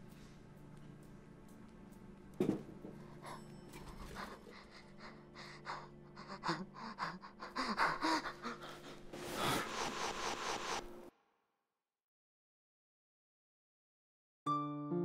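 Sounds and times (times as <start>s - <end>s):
person gasping and breathing hard: 3.0s - 10.8s.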